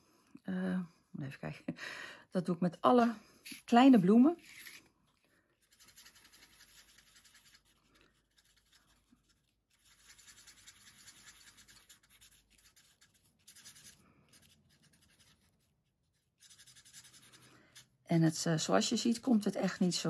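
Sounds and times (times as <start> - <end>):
marker scratching on paper: 3.5 - 4.8, 5.6 - 18.0.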